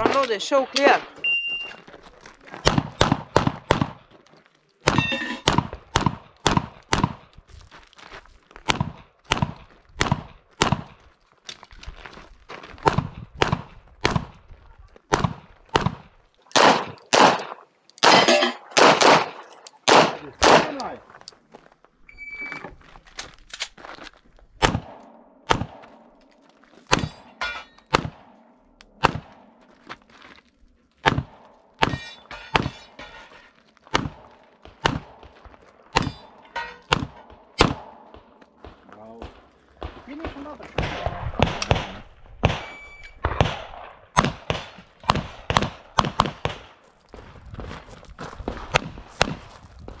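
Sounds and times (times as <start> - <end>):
gunshots with echo: 15.1 - 20.9, 24.6 - 26.2, 26.9 - 29.6, 33.9 - 46.8
handgun shots: 15.1 - 21.0.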